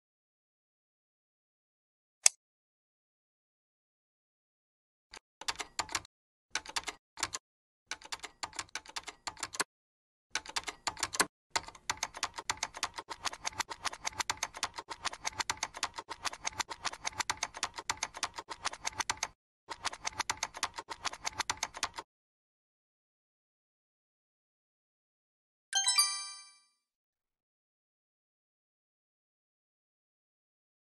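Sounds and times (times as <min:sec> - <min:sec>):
computer keyboard typing: 0:05.4 - 0:09.7, 0:10.4 - 0:22.1.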